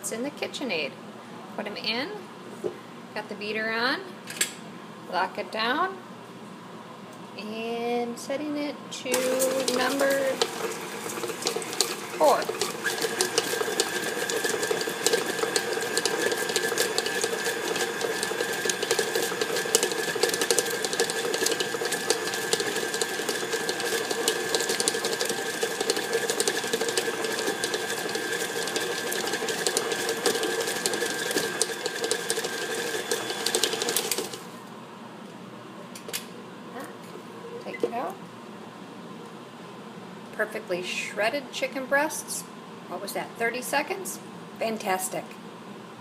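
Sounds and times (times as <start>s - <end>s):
mixer motor whining: 9.0s - 34.7s.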